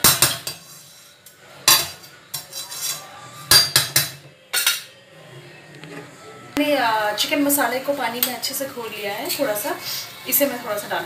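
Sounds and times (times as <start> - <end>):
metal spatula scraping a pan: 0.0 - 4.9.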